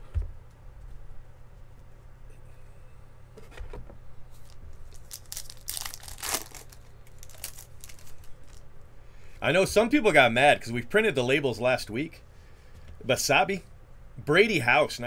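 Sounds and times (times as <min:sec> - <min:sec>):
foil wrapper tearing and crinkling: 0:04.4 - 0:08.6.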